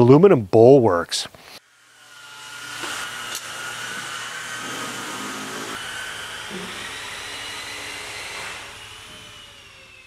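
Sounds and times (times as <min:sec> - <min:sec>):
band saw cutting metal: 0:01.6 - 0:10.0.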